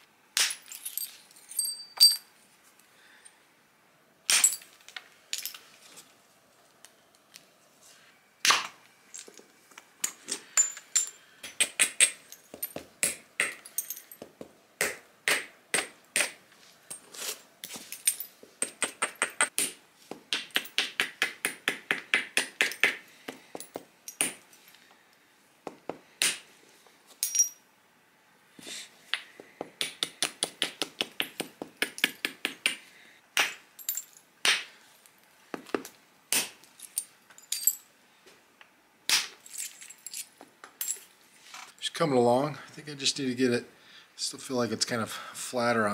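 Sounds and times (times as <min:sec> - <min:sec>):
hard strikes on stone: 0:11.4 - 0:13.6, 0:14.2 - 0:16.4, 0:18.6 - 0:24.4, 0:33.4 - 0:33.6.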